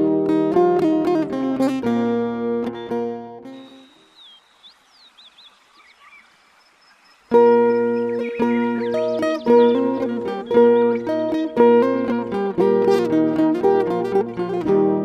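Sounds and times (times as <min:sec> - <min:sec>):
plucked string instrument music: 0:00.0 - 0:04.0, 0:07.3 - 0:15.0
faint high chirps: 0:03.5 - 0:11.1.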